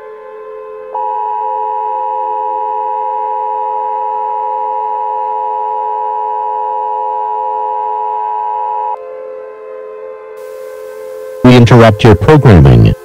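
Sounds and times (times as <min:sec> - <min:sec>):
two-tone electronic alert tone: 0:01.0 - 0:09.0.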